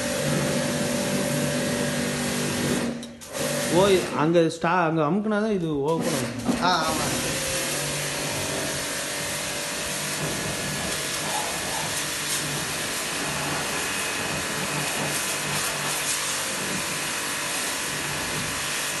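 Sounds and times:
pressure washer motor hum: 0:00.0 - 0:04.4, 0:05.9 - 0:19.0
water jet spraying hiss: 0:06.8 - 0:19.0.

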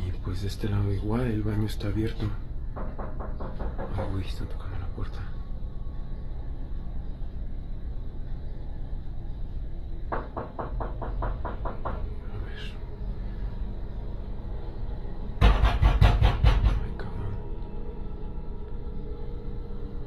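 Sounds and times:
knocking on wooden door: 0:02.7 - 0:04.2, 0:10.1 - 0:12.1, 0:15.4 - 0:16.9
banging on door: 0:02.8 - 0:04.2, 0:10.1 - 0:12.1, 0:15.4 - 0:16.9
low rumble: 0:11.2 - 0:20.0.

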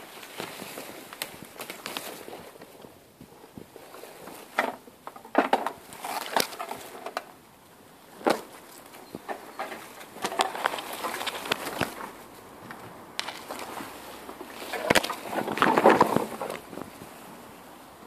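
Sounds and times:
bamboo leaves rustling and crackling: 0:00.0 - 0:18.0
bamboo canes snapping: 0:04.6 - 0:07.4, 0:08.2 - 0:16.9.

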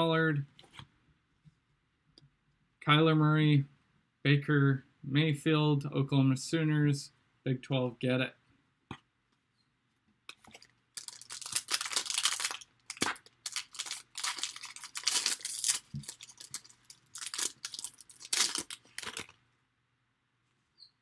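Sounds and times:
foil wrapper tearing and crinkling: 0:10.5 - 0:19.4.

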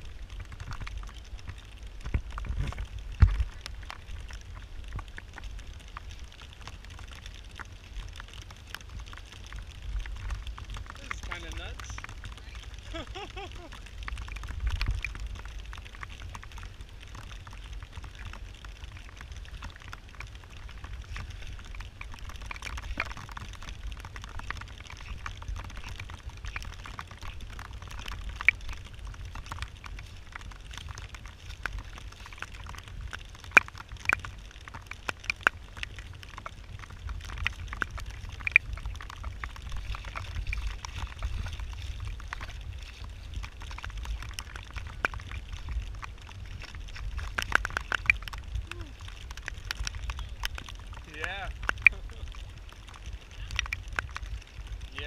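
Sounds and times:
low rumble: 0:00.0 - 0:55.0
raindrops tapping near microphone: 0:00.0 - 0:55.0
heavy rain hissing: 0:09.8 - 0:14.0, 0:48.5 - 0:49.1.

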